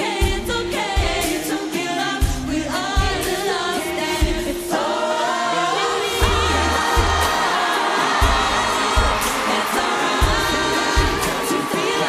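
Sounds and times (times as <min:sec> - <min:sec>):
mixed choir singing in harmony: 0:00.0 - 0:12.0
deep drum beat: 0:06.2 - 0:07.4, 0:08.2 - 0:09.5, 0:10.2 - 0:11.4.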